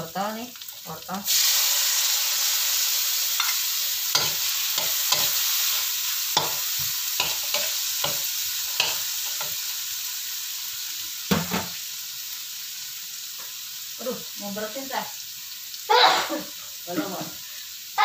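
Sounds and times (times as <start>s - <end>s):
food sizzling in oil: 0.0s - 18.0s
metal spatula scraping a pan: 3.3s - 9.6s.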